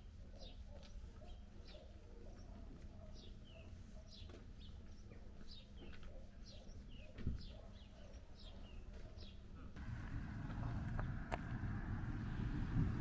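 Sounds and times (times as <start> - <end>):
bird chirping: 0.0 - 9.5
low steady hum: 9.6 - 13.0.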